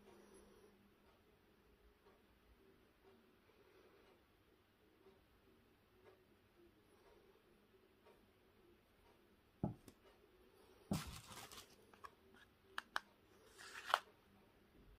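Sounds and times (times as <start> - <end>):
low thump on table: 9.6 - 9.8.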